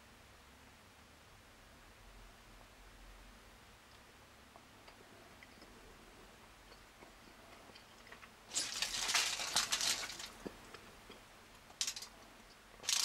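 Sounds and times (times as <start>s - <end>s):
foil wrapper crinkling: 8.5s - 10.5s, 11.7s - 12.1s, 12.8s - 13.0s.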